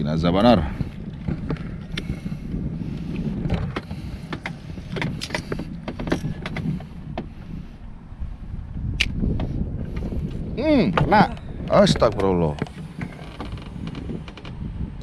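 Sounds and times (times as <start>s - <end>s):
wind buffeting microphone: 0.0s - 15.0s
clicks from handling rod and reel: 3.1s - 7.3s, 12.0s - 14.6s.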